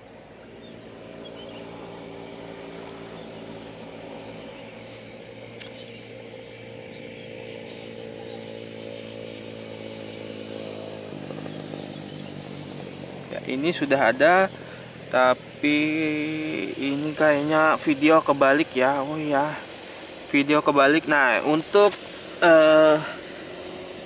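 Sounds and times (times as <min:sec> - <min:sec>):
motor humming: 0:00.0 - 0:24.0
sharp click: 0:05.6 - 0:05.8.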